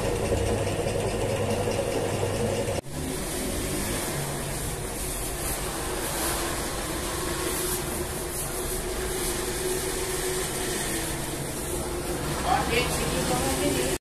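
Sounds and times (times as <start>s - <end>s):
bread machine mechanical rush: 0.0s - 4.8s.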